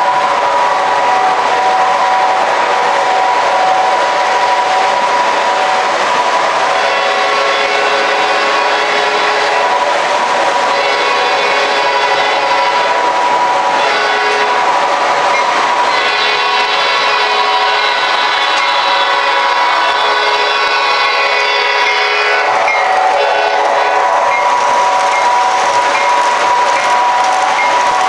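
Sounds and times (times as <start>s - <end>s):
model locomotive engine sound: 0.0s - 28.0s
model train air horn: 6.7s - 9.8s, 10.7s - 13.0s, 13.8s - 14.7s, 15.8s - 24.4s
wheels clattering on track: 24.3s - 28.0s.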